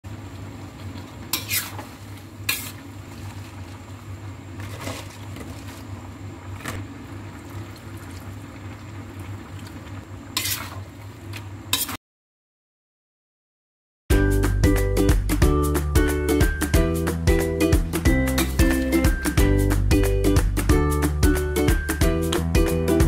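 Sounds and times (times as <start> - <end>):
soft frying sizzle: 0.1 - 11.9
metal spatula scraping a wok: 1.3 - 2.9, 10.4 - 10.8, 11.7 - 12.0.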